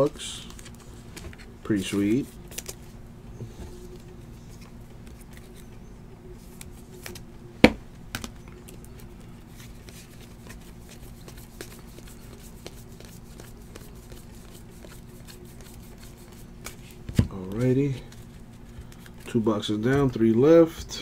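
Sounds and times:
low hum: 0:00.0 - 0:19.4
trading cards flipped by hand: 0:02.5 - 0:02.9, 0:03.9 - 0:05.8, 0:06.4 - 0:07.3, 0:08.1 - 0:19.4.

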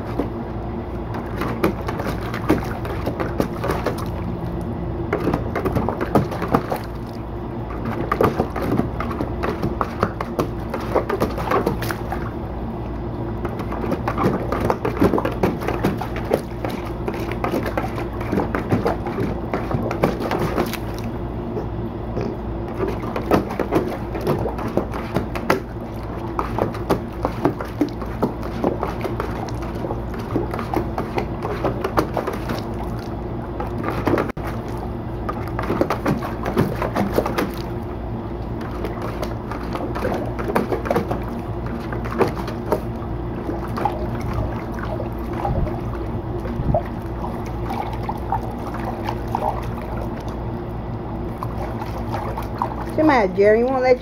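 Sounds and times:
dog splashing water: 0:00.0 - 0:21.3, 0:22.6 - 0:54.0
steady low hum: 0:00.0 - 0:54.0.

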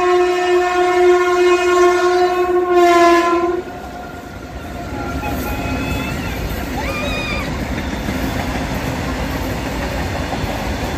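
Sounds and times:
locomotive horn blast: 0:00.0 - 0:06.5.

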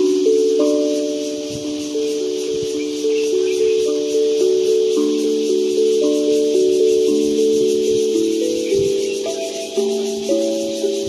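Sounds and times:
slow melody of ringing notes: 0:00.0 - 0:11.0
steady high hiss: 0:00.0 - 0:11.0.

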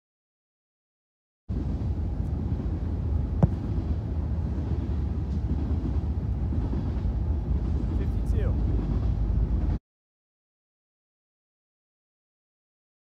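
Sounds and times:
foot kicking football: 0:03.4 - 0:03.7.

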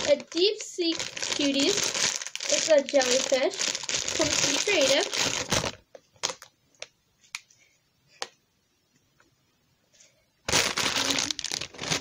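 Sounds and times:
plastic packaging crinkling: 0:00.0 - 0:06.5, 0:10.5 - 0:12.0.

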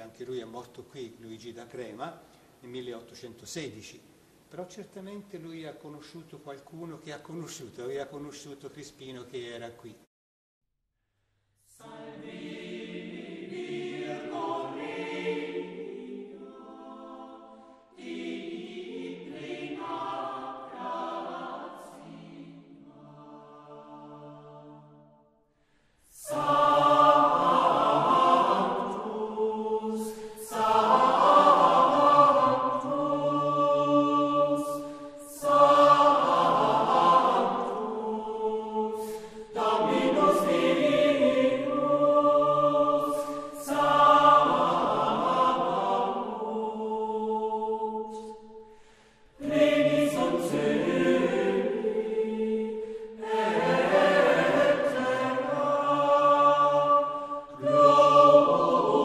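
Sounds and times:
choir singing a chant: 0:11.7 - 0:25.3, 0:26.1 - 0:59.0.

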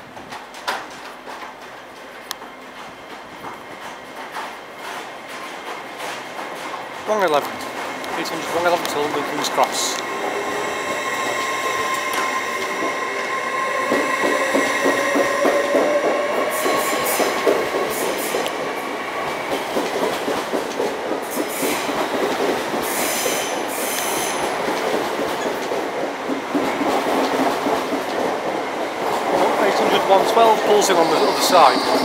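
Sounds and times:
train rolling: 0:00.0 - 0:32.0
high wheel squeals: 0:10.0 - 0:17.4, 0:29.7 - 0:32.0.

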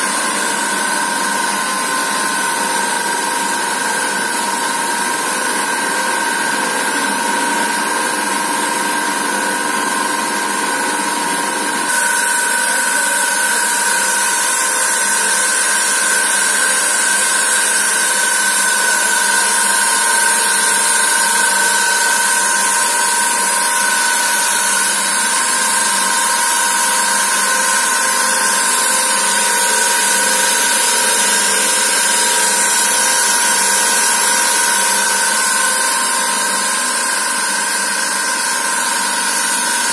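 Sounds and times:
machine whine with hiss: 0:00.0 - 0:39.9.

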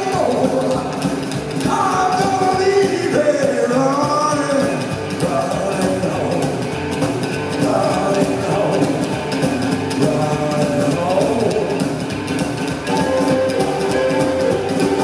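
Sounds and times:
person singing: 0:00.0 - 0:06.8, 0:07.6 - 0:12.0
rock and roll band playing: 0:00.0 - 0:15.0.

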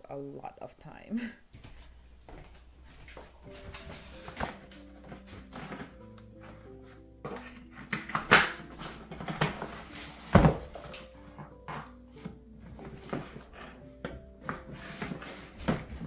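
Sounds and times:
soft background music: 0:01.7 - 0:16.0
cardboard box scuffs and knocks: 0:09.5 - 0:10.9.

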